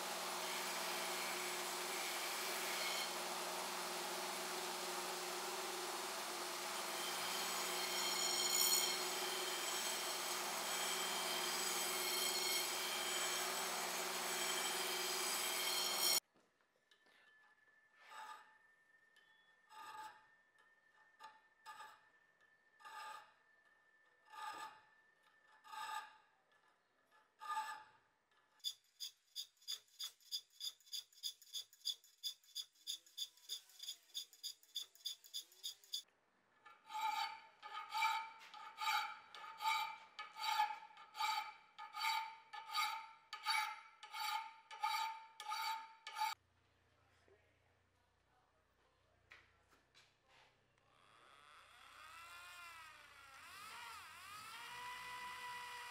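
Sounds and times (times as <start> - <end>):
belt grinder grinding steel blade: 0.0 - 16.2, 28.6 - 36.0, 36.8 - 46.4
hand file rasping on steel: 6.6 - 16.2, 28.6 - 36.0, 36.7 - 46.4.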